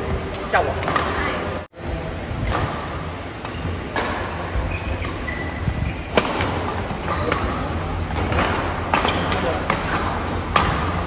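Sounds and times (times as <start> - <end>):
racket hitting shuttlecock: 0.8 - 1.3, 2.4 - 5.3, 6.1 - 11.0.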